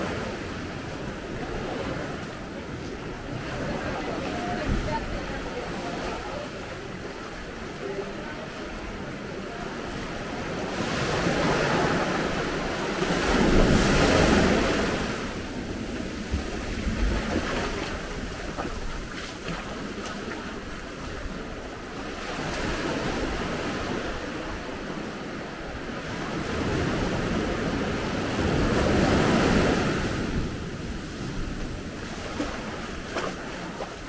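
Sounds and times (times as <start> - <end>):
sea waves washing on shore: 0.0 - 34.0
wind buffeting microphone: 10.1 - 25.0.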